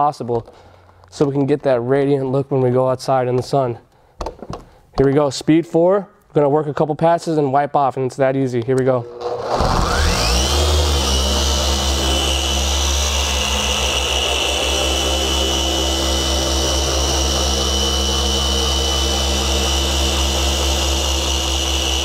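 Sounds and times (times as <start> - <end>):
machine polisher whining: 9.0 - 22.0.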